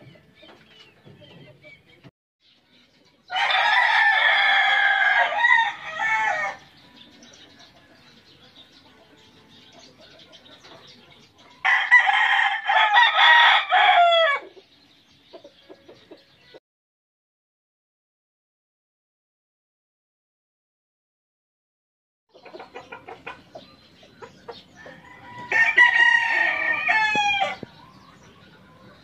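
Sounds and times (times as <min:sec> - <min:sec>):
rooster crowing: 0:03.3 - 0:06.6, 0:11.6 - 0:14.4, 0:24.9 - 0:27.6.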